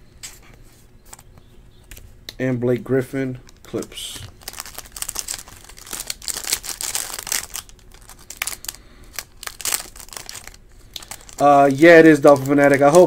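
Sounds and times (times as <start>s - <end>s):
cellophane wrapper crinkling: 3.4s - 13.0s.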